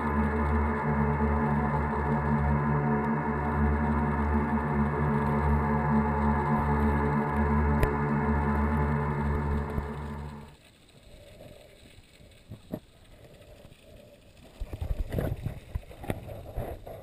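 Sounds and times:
held musical tone: 0:00.0 - 0:10.6
muffled underwater water sound: 0:00.0 - 0:17.0.

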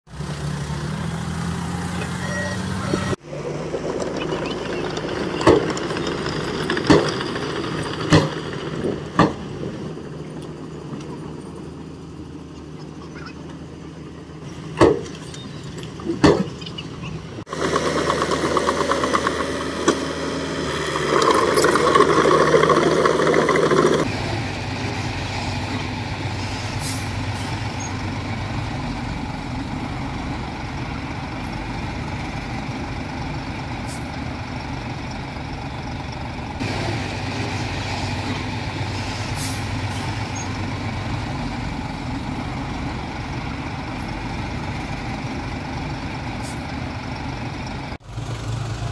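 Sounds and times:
diesel engines working: 0:00.1 - 0:48.9
loud rattling: 0:03.2 - 0:09.4, 0:17.4 - 0:20.1, 0:20.7 - 0:24.1.

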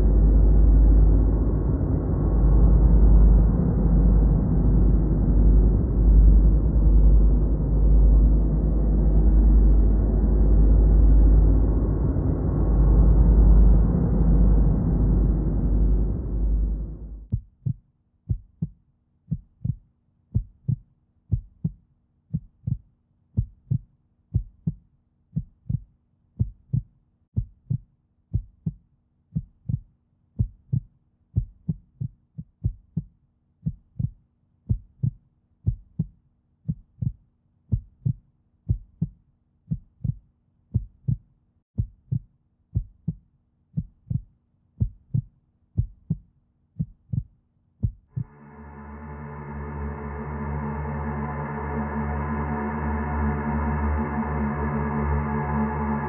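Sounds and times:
loud rushing noise: 0:00.0 - 0:17.2, 0:48.2 - 0:56.0
faint steady hum: 0:00.0 - 0:17.3
heartbeat thumps: 0:00.0 - 0:24.8, 0:25.4 - 0:28.8, 0:29.4 - 0:43.2, 0:43.8 - 0:48.5.

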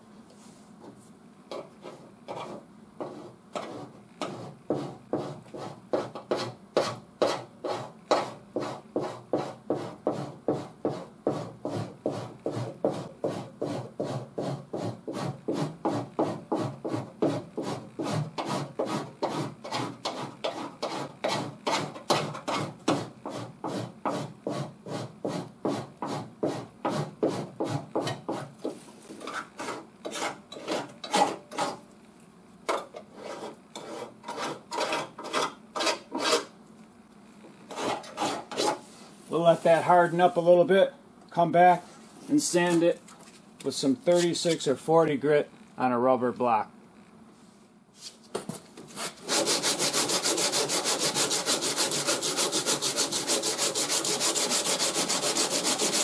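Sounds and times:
rasp blade scraping body filler: 0:01.5 - 0:31.8, 0:33.1 - 0:36.5, 0:37.7 - 0:38.8, 0:48.9 - 0:56.0.

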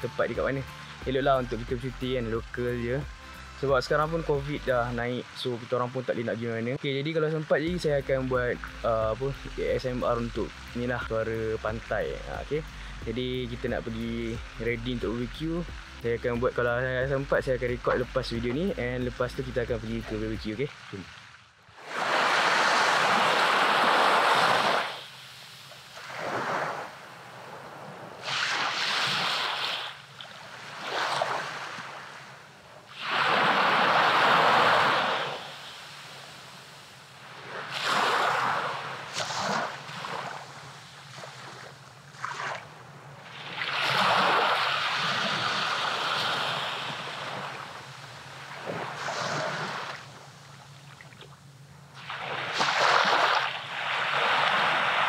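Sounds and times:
small waves on sandy beach: 0:20.5 - 0:55.0.

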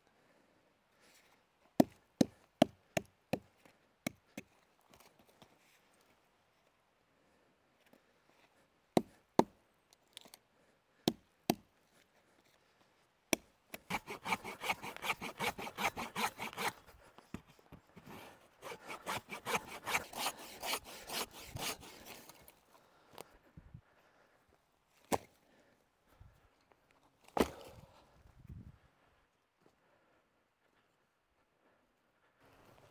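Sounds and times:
axe chopping log: 0:09.0 - 0:09.5
hand saw cutting log: 0:13.7 - 0:17.0, 0:18.0 - 0:22.4.

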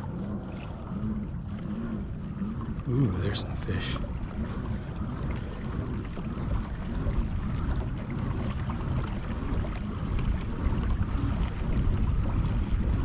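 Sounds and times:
water against kayak hull: 0:00.0 - 0:13.0
wind rumble on microphone: 0:00.0 - 0:13.0.

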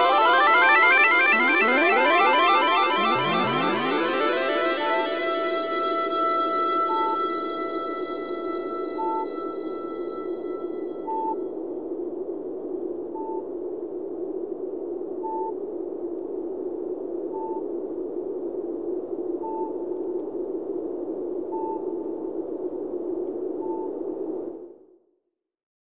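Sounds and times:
hissing electronic drone: 0:00.0 - 0:10.7.

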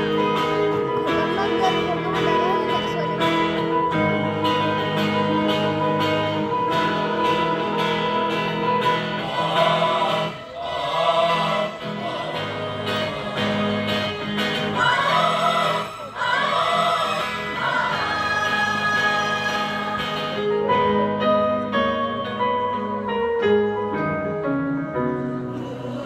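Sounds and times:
strummed acoustic guitar: 0:00.0 - 0:23.6
choir singing: 0:03.9 - 0:20.9, 0:25.4 - 0:26.0.

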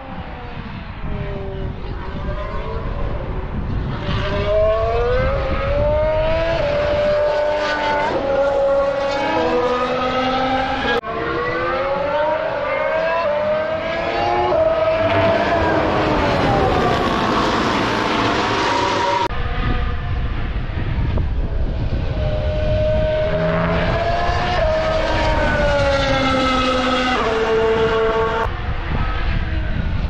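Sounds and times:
race car engine accelerating: 0:03.9 - 0:20.5, 0:21.7 - 0:28.5.

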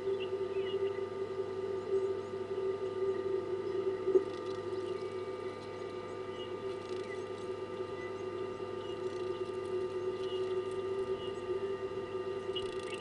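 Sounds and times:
faint bird chirps: 0:00.0 - 0:13.0
steady hum of held pitches: 0:00.0 - 0:13.0.

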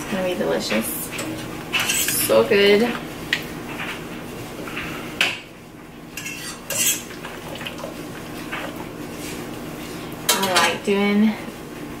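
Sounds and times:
metal server scraping steel pot: 0:01.2 - 0:02.6, 0:06.2 - 0:07.1.

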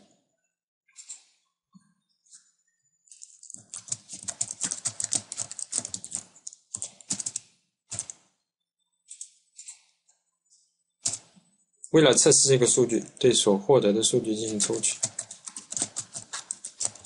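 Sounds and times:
computer keyboard typing: 0:03.2 - 0:08.2, 0:11.0 - 0:11.4, 0:14.4 - 0:17.0.

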